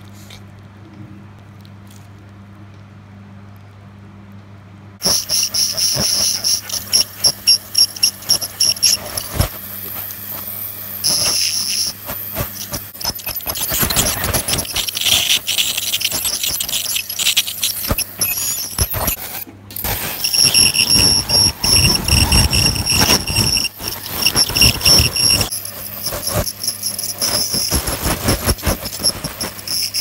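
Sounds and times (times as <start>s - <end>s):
high-pitched scaler whine: 5.0s - 30.0s.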